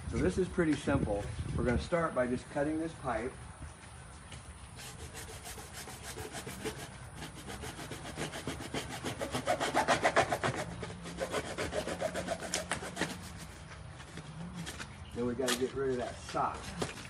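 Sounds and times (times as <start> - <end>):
hacksaw cutting plastic pipe: 4.8 - 13.6.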